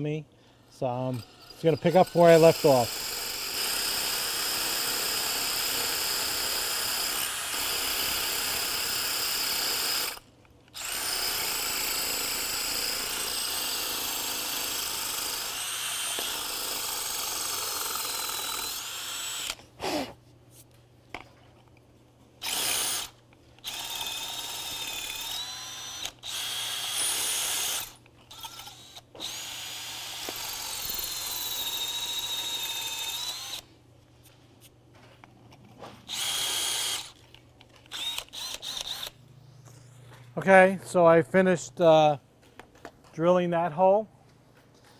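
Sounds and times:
drill motor whine: 1.0s - 10.2s, 10.8s - 20.0s, 22.4s - 33.6s, 36.1s - 37.2s, 37.9s - 39.1s
drill grinding into concrete: 1.1s - 10.2s, 10.8s - 20.1s, 22.4s - 33.6s, 36.1s - 37.2s.

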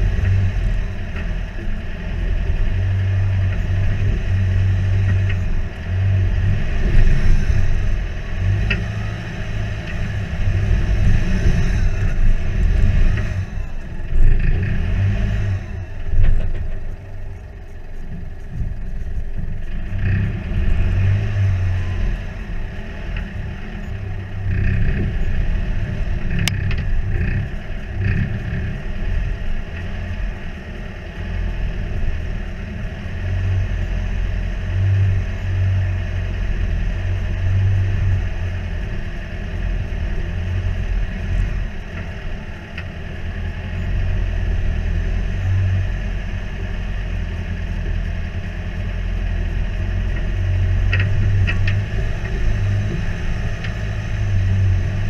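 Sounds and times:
off-road vehicle engine: 0.0s - 55.0s.

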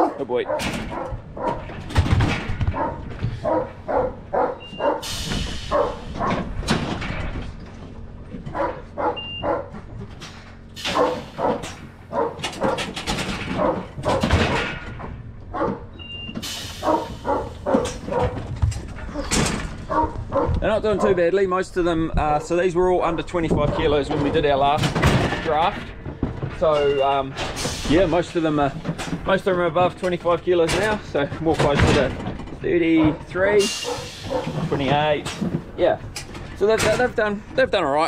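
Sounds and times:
dog barking: 0.0s - 1.7s, 2.7s - 6.5s, 8.5s - 9.8s, 10.8s - 14.7s, 15.5s - 15.9s, 16.7s - 18.5s, 19.1s - 21.1s, 33.2s - 34.6s.

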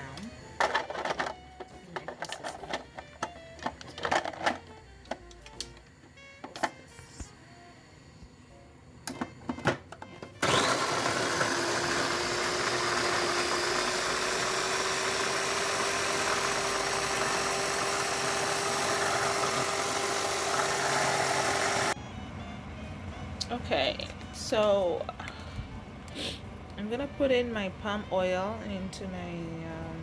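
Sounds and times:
food processor chopping vegetables: 10.3s - 22.0s.

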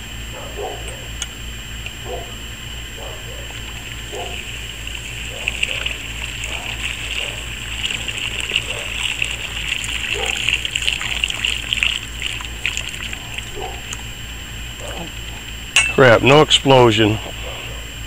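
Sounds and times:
boiling water pouring onto ice: 3.5s - 14.1s.

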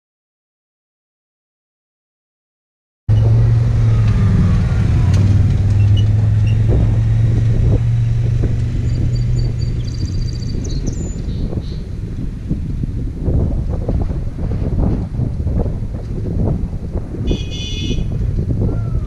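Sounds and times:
vehicle engine running: 3.1s - 19.0s.

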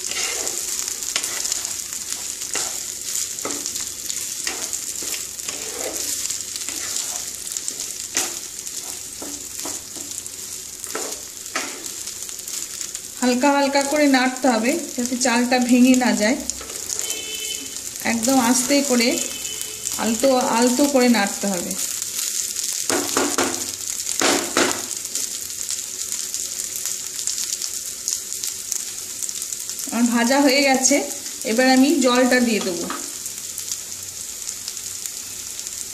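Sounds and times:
wooden spatula scraping a pan: 0.0s - 11.9s, 16.6s - 17.8s
rice sizzling in a pan: 0.0s - 35.9s.

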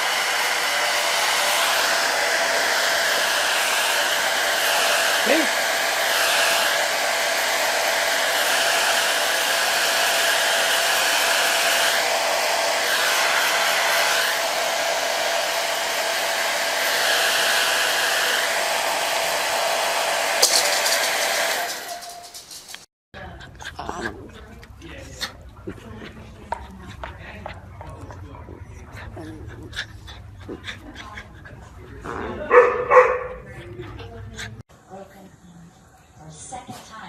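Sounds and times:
hair dryer blowing: 0.0s - 22.6s
sharp click: 20.4s - 22.8s.

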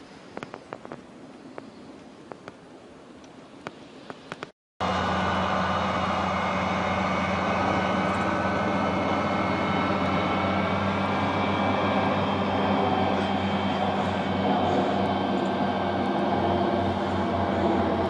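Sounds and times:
engine humming: 4.8s - 18.0s.

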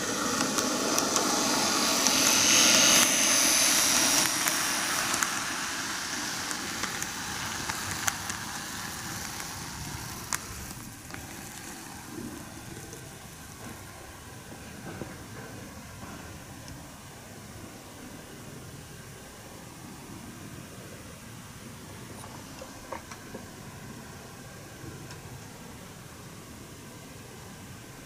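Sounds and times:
model train motor whirring: 0.0s - 17.0s
wheels rolling on rails: 0.0s - 20.4s, 21.9s - 26.5s.

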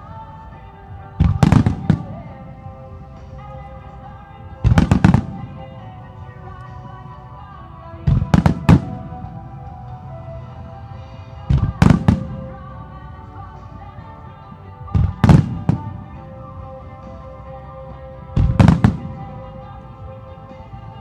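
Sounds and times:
music playing: 0.0s - 21.0s
firework bangs: 4.7s - 5.6s, 8.1s - 9.2s.

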